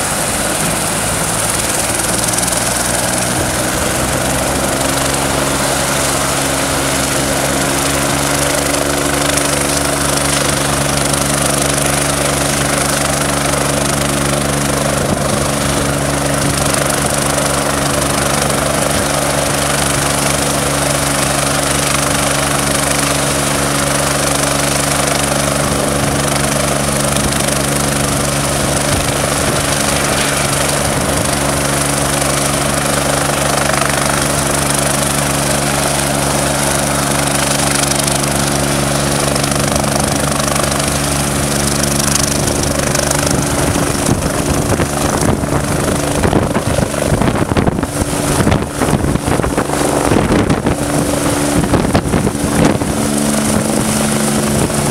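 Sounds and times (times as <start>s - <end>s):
helicopter turbine whine: 0.0s - 54.9s.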